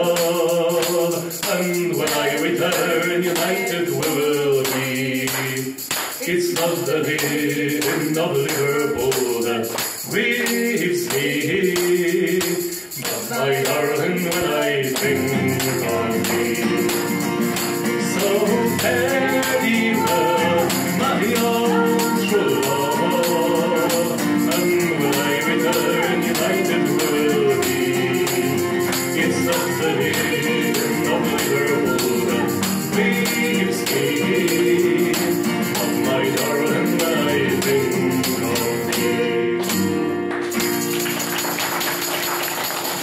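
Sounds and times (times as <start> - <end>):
acoustic guitar: 0.0 - 43.0
shaken percussion rattle: 0.0 - 43.0
woman singing: 13.3 - 14.0, 18.1 - 33.9.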